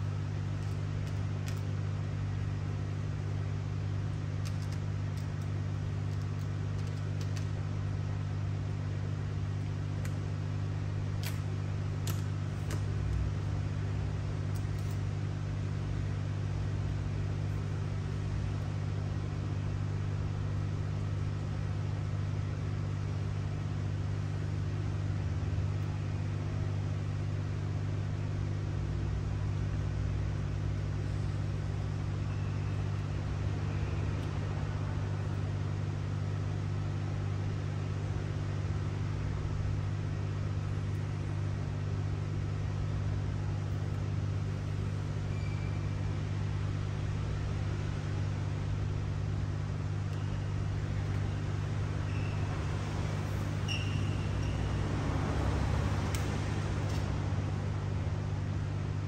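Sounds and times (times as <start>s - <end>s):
low machine hum: 0.0s - 59.0s.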